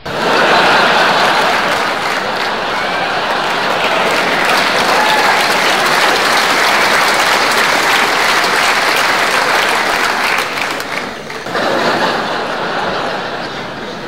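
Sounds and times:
breathy laughter: 0:00.0 - 0:07.3.

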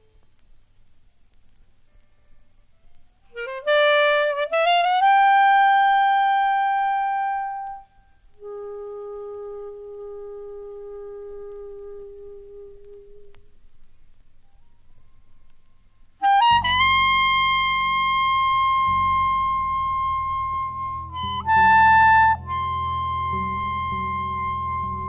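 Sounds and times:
free jazz woodwind: 0:03.3 - 0:13.5, 0:16.2 - 0:25.0.

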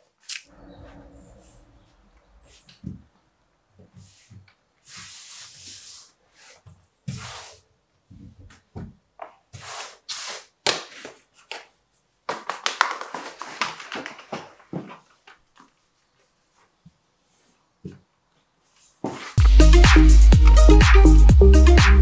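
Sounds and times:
wallpaper swishing rubs: 0:03.8 - 0:07.7.

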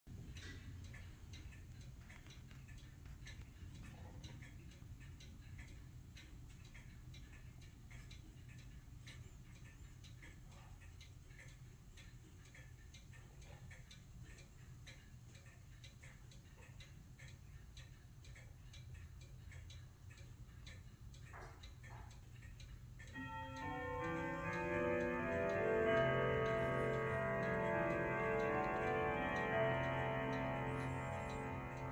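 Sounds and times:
clock ticking faintly: 0:00.1 - 0:31.9
pitched tones: 0:23.2 - 0:31.9.

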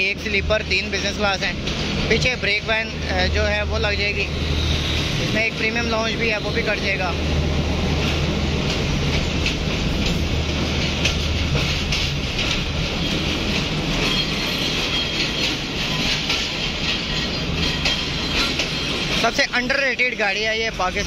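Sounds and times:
train low hum: 0:00.0 - 0:21.0
clicks and clanks: 0:08.0 - 0:12.9.

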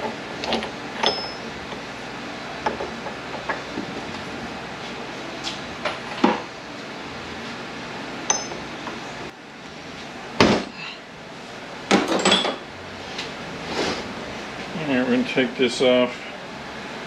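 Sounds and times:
ringing metallic tap: 0:08.3 - 0:08.6.

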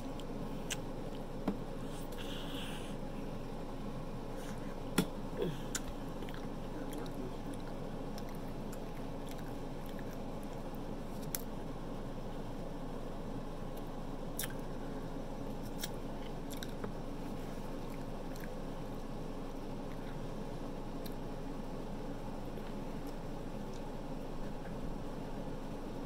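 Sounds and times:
mouth smacks and clicks: 0:00.1 - 0:01.2
person chewing: 0:05.6 - 0:11.5, 0:15.6 - 0:16.9, 0:17.6 - 0:19.1.

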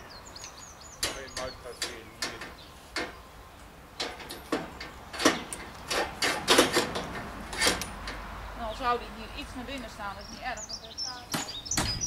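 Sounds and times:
metal pole knocking and clanking: 0:04.0 - 0:08.2.

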